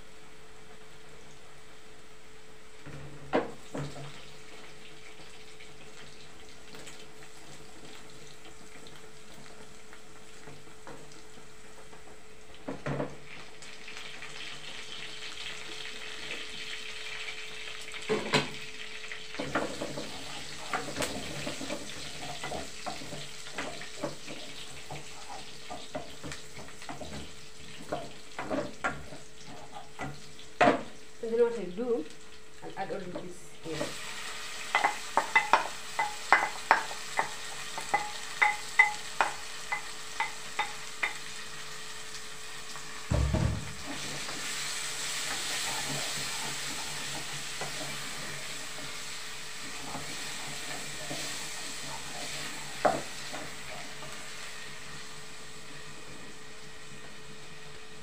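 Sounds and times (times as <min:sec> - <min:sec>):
gas stove hum: 0:00.0 - 0:58.0
soft sizzling hiss: 0:00.0 - 0:58.0
spoon knocking against pot: 0:34.8 - 0:41.2.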